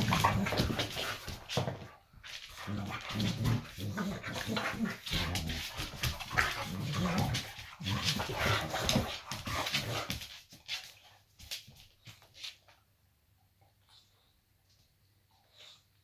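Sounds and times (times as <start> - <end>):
dogs growling while play-fighting: 0.0 - 10.2.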